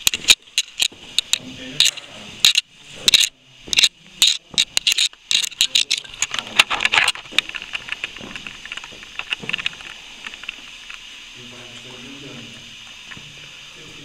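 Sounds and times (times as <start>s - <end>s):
footsteps crunching on gravel: 7.2s - 10.7s.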